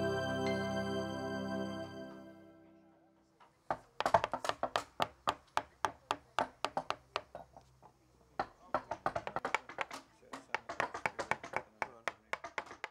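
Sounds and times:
mallet striking a chisel: 0:08.4 - 0:12.9.

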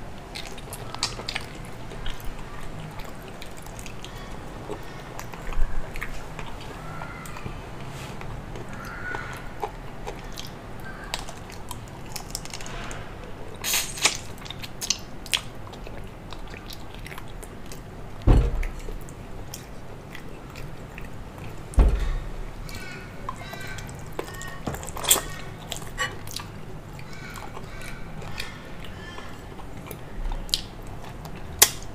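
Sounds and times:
person chewing and gnawing meat: 0:00.0 - 0:12.7, 0:13.6 - 0:31.9
dull thump: 0:18.2 - 0:18.8, 0:21.8 - 0:22.4.

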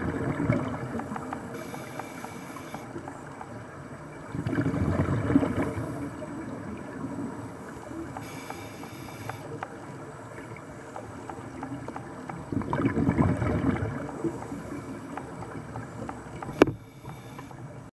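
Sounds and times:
exhaled bubbles from regulator: 0:00.0 - 0:17.9
brief hiss: 0:08.2 - 0:09.5, 0:16.6 - 0:17.6
sharp click: 0:16.1 - 0:17.5.

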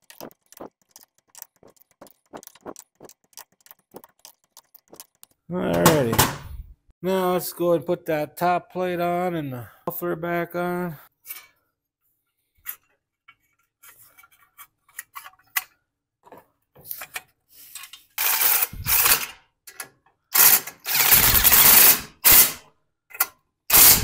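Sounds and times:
cordless drill running: 0:20.9 - 0:22.0.

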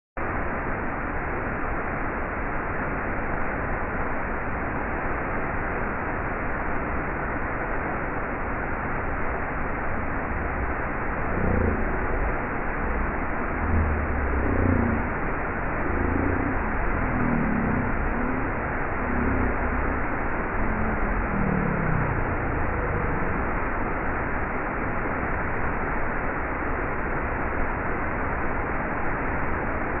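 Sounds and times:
waterfall rushing: 0:02.6 - 0:30.0.

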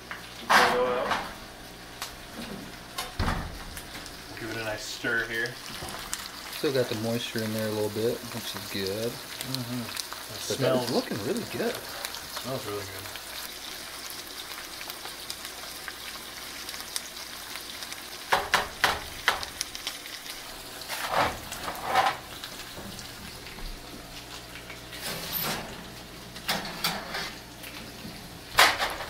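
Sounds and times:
rice sizzling in a skillet: 0:00.0 - 0:29.0
pans clattering: 0:20.8 - 0:23.4, 0:24.9 - 0:27.4, 0:28.0 - 0:29.0.

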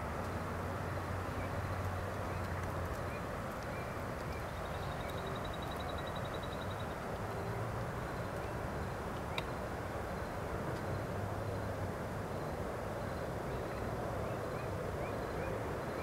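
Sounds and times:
outdoor background noise: 0:00.0 - 0:16.0
faint bird chirps: 0:03.1 - 0:09.6.

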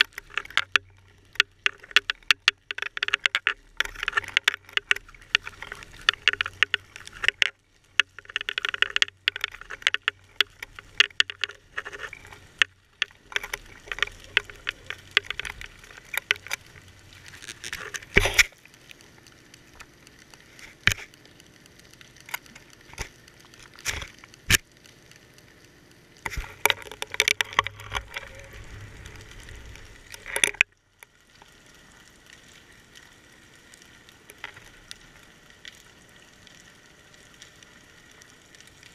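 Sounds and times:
sharp clicks underwater: 0:00.0 - 0:38.9
underwater crackling: 0:00.0 - 0:38.9
low rumble: 0:27.6 - 0:30.4.

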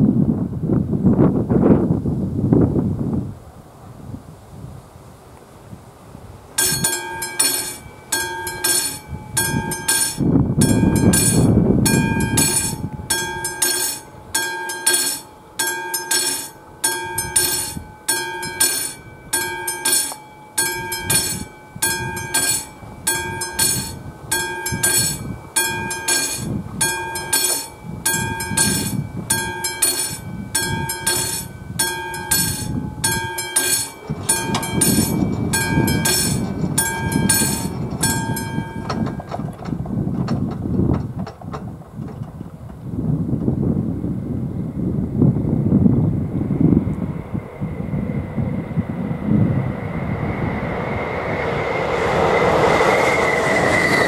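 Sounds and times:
level crossing bell ringing: 0:06.6 - 0:39.4.

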